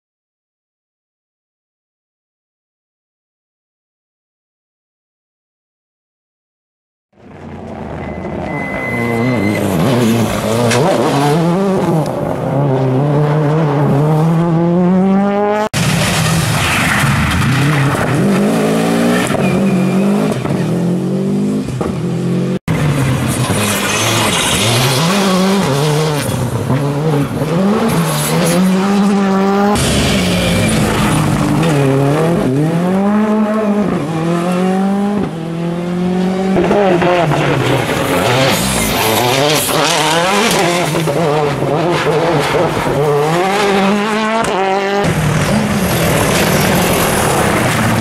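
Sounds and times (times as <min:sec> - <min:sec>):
rally car engines revving: 0:07.3 - 0:48.0.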